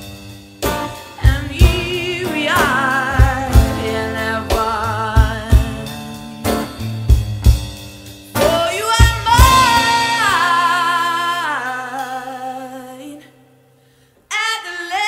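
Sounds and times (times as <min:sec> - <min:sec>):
drum hits: 0:00.0 - 0:10.5
live band music: 0:00.0 - 0:13.1
woman singing: 0:01.1 - 0:06.2, 0:08.4 - 0:13.6, 0:14.2 - 0:15.0.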